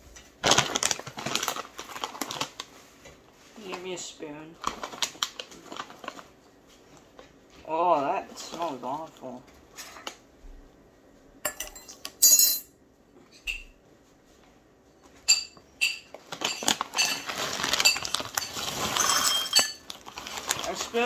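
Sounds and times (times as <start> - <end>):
plastic bag crinkling: 0.2 - 7.2, 16.1 - 21.0
snack mix pouring into glass bowl: 16.4 - 21.0.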